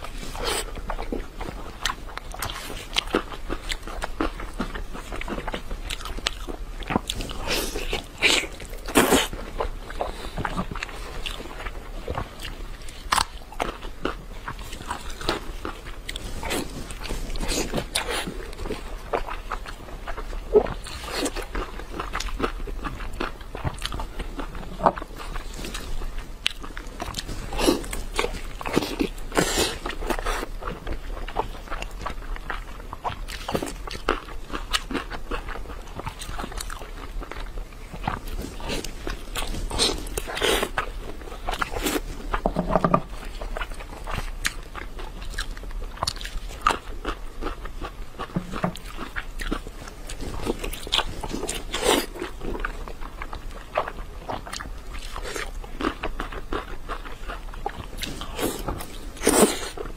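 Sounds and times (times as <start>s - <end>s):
person chewing with wet smacking: 0.0s - 59.9s.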